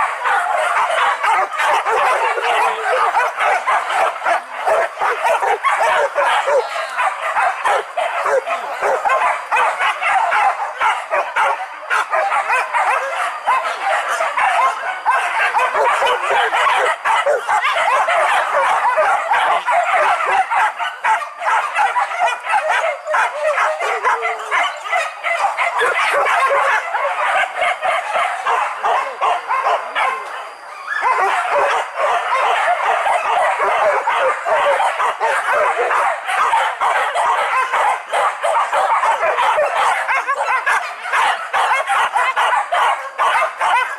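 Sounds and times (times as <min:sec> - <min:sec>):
dogs barking and yelping: 0:00.0 - 0:43.9.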